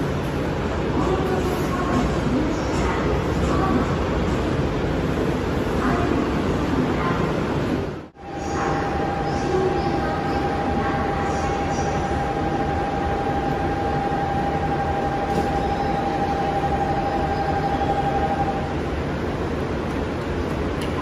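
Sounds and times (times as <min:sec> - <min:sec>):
standing train humming: 0:00.0 - 0:21.0
electronic departure bell tone: 0:13.4 - 0:18.6.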